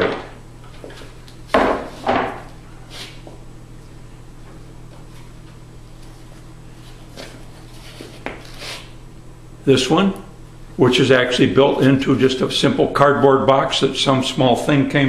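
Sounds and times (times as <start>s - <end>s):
board knocking on workbench: 1.6s - 2.4s.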